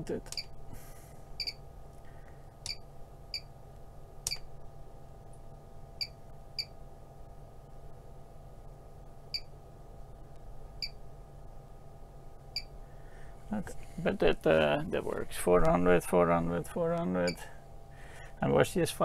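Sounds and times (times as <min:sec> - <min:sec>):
low equipment hum: 0:00.0 - 0:19.0
sharp click: 0:04.2 - 0:04.5.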